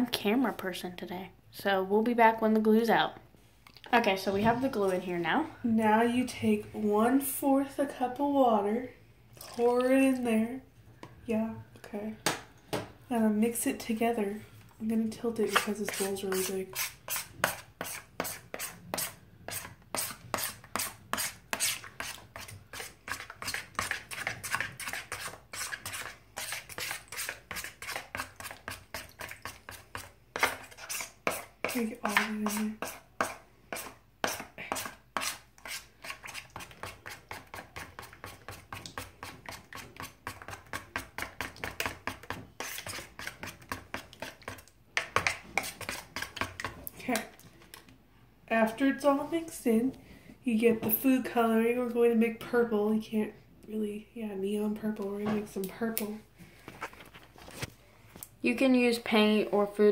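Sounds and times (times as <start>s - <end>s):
plastic spoon scraping plastic bowl: 15.2s - 47.8s.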